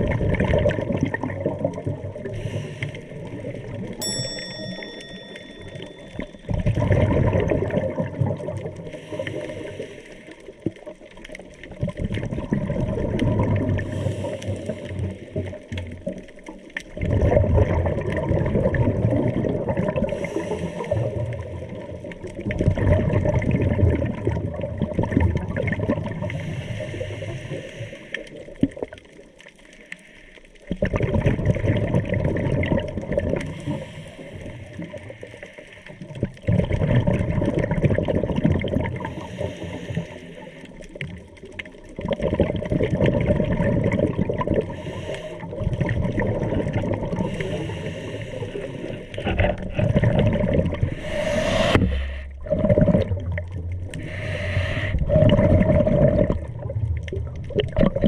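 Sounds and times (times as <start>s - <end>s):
exhaled bubbles gurgling: 0.0s - 58.0s
regulator inhalations: 47.3s - 49.2s, 50.9s - 52.4s, 54.0s - 55.2s.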